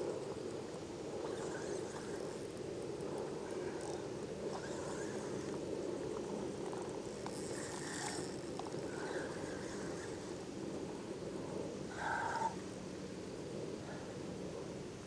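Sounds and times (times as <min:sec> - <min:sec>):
wind: 0:00.0 - 0:15.0
fishing reel clicks: 0:06.7 - 0:10.1.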